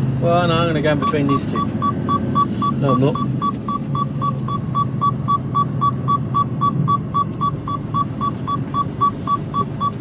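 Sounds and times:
lorry engine rumble: 0:00.0 - 0:10.0
rapid seatbelt warning beeps: 0:00.9 - 0:10.0.

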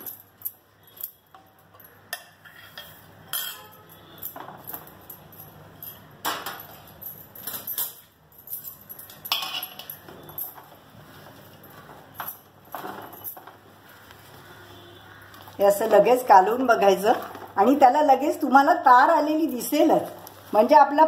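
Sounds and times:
steel spoon clinking on metal: 0:00.0 - 0:10.6.

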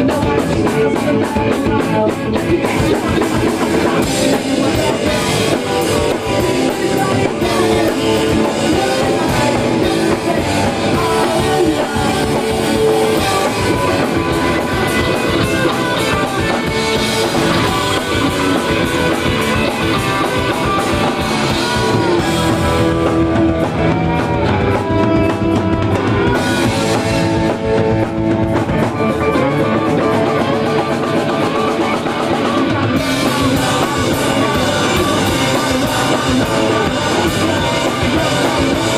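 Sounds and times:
bass guitar: 0:00.0 - 0:38.9
drum kit: 0:00.0 - 0:38.9
electric guitars: 0:00.0 - 0:38.9
person singing: 0:00.0 - 0:38.9.

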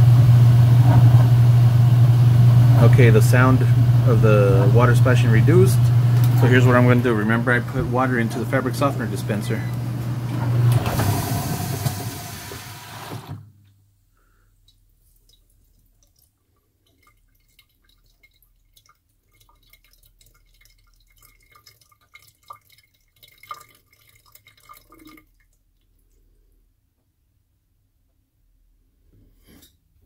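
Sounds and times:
washing machine spin humming: 0:00.0 - 0:13.5
water dripping and trickling: 0:14.6 - 0:26.0.

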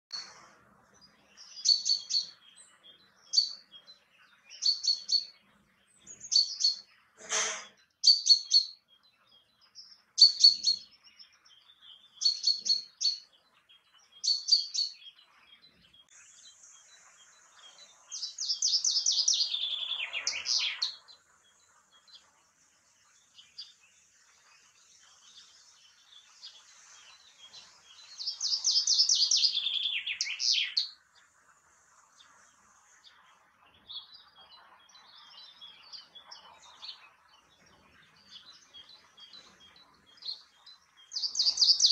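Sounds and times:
bird short sharp calls: 0:06.3 - 0:08.6
bird song descending trill: 0:14.0 - 0:21.1, 0:25.3 - 0:31.0.

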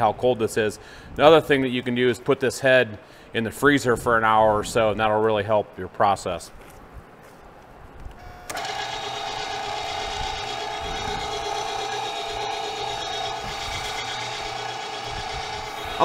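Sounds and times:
electric meat grinder whining: 0:08.4 - 0:16.0.

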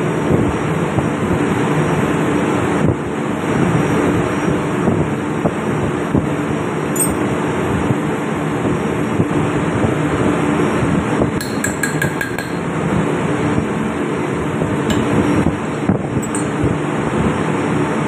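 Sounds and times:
engine-room machinery drone: 0:00.0 - 0:18.0
metallic clinks of hand tools: 0:07.0 - 0:07.2, 0:16.2 - 0:16.6.

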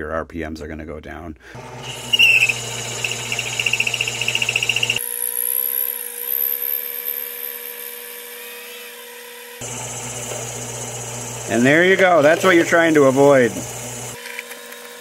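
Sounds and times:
lathe motor hum: 0:01.6 - 0:05.0, 0:09.6 - 0:14.2
lathe cutting whine: 0:01.6 - 0:07.9, 0:09.6 - 0:14.2.

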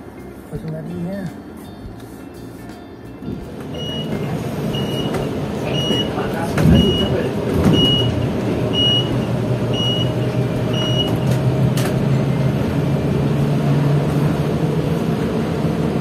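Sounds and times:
bus engine drone: 0:00.0 - 0:16.0
high beep: 0:03.7 - 0:11.2.

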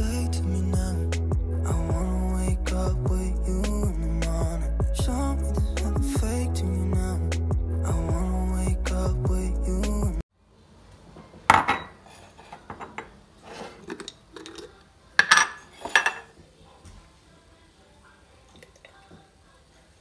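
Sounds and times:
background music: 0:00.0 - 0:10.2
kitchenware clinking and knocking: 0:11.4 - 0:13.2, 0:15.2 - 0:16.4.

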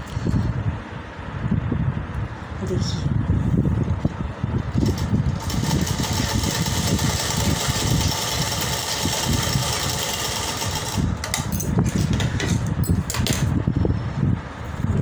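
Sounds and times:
sewing machine stitching: 0:04.8 - 0:11.5.

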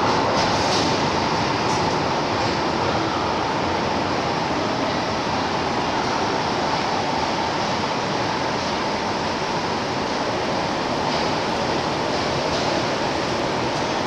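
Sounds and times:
train rushing past in tunnel: 0:00.0 - 0:14.0.

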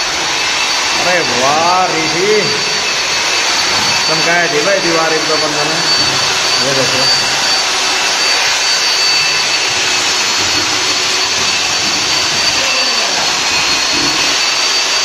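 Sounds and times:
machine running with rushing hiss: 0:00.0 - 0:15.0
thin high whine: 0:00.0 - 0:15.0.

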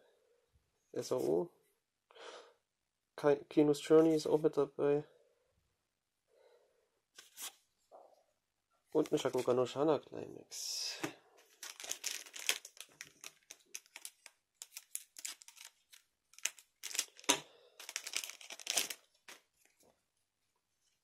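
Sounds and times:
plastic wrapper crinkling: 0:09.0 - 0:09.5, 0:11.4 - 0:19.8.

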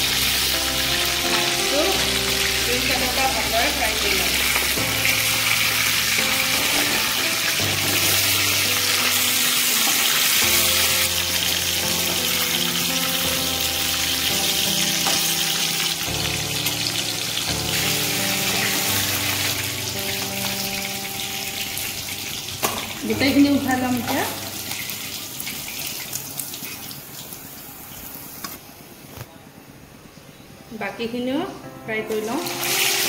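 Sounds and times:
fish sizzling in hot oil: 0:00.0 - 0:28.5, 0:32.1 - 0:33.0.

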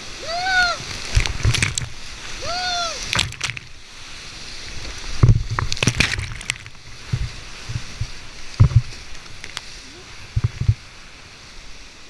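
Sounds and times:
water splashing against boat: 0:00.0 - 0:12.0
whitewater rushing: 0:00.0 - 0:12.0
person shouting: 0:00.2 - 0:00.9, 0:02.4 - 0:03.1.

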